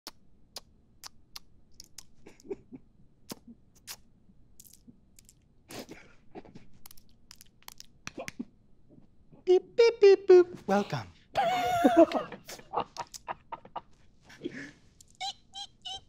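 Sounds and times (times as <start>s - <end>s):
mouth clicks: 0.0s - 2.5s, 3.3s - 5.4s.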